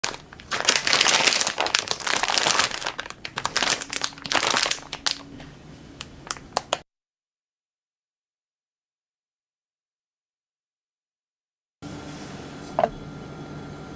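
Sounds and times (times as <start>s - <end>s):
plastic bags crinkling: 0.0s - 6.8s.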